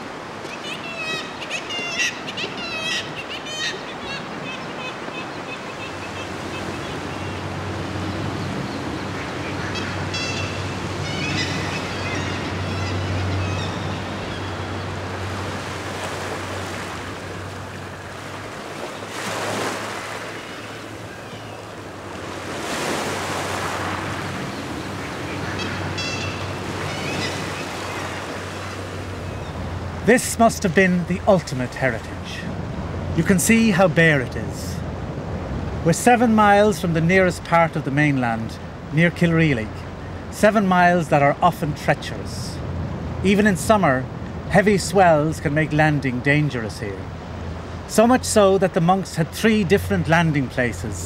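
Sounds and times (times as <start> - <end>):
seabirds calling: 0.0 - 51.0
waves breaking on rocks: 15.0 - 21.1, 21.8 - 25.0.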